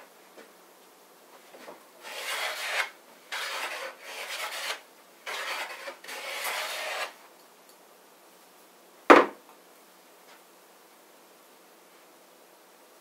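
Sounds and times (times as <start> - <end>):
hand plane shaving wood: 2.0 - 7.2.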